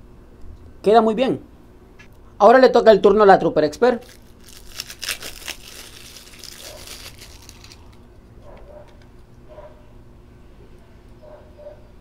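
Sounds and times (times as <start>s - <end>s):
electrical tape crinkling and rustling: 3.9s - 9.2s.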